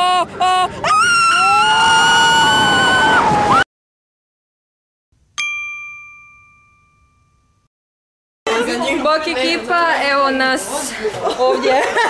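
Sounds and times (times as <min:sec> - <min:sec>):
roller coaster riders screaming: 0:00.0 - 0:03.6
bright chime: 0:05.4 - 0:07.7.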